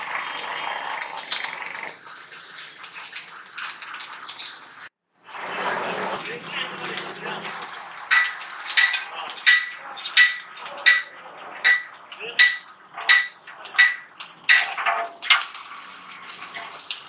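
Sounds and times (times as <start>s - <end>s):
hammer striking metal tank: 8.1s - 15.0s.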